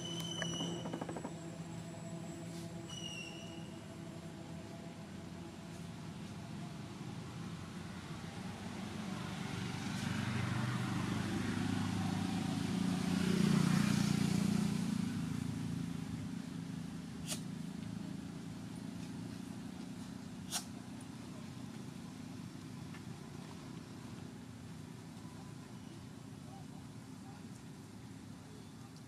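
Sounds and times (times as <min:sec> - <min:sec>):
vehicle passing by: 0:00.0 - 0:16.4.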